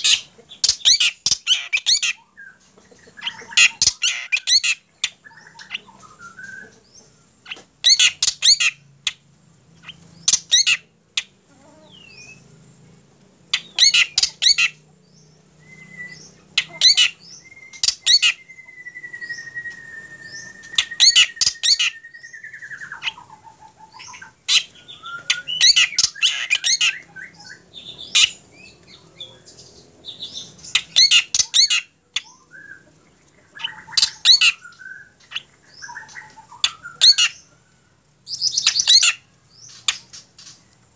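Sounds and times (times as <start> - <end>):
bird harsh repeated calls: 0.0 - 9.2, 9.8 - 12.5, 13.5 - 37.6, 38.3 - 40.6
long descending bird whistle: 5.2 - 6.8, 15.6 - 29.5, 33.5 - 39.0.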